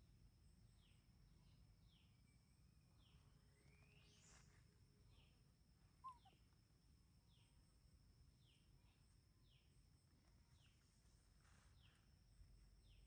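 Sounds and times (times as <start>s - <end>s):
faint bird call: 5.9s - 6.5s.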